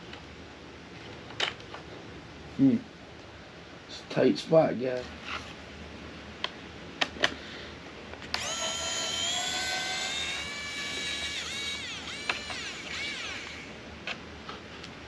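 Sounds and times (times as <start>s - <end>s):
electric screwdriver motor whining: 8.3s - 13.8s.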